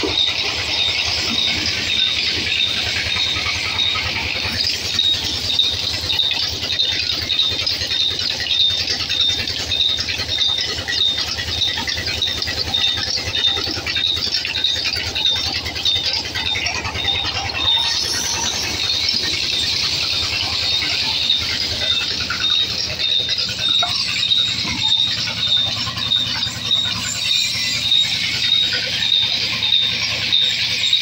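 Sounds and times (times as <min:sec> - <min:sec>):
low belt drive hum: 0:00.0 - 0:31.0
repeating high squeak: 0:00.0 - 0:31.0.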